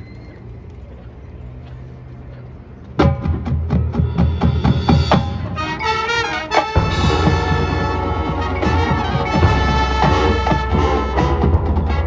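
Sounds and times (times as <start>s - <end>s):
low background murmur: 0.0s - 4.4s
marching band playing: 3.0s - 12.0s
sharp percussion hits: 3.0s - 12.0s
brass chords: 4.5s - 12.0s
deep bass: 6.8s - 12.0s.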